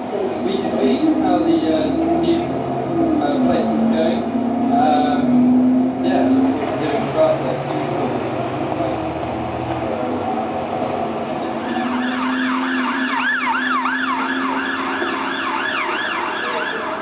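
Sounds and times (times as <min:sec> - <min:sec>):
street traffic hum: 0:00.0 - 0:17.0
ambulance siren yelping: 0:11.4 - 0:17.0.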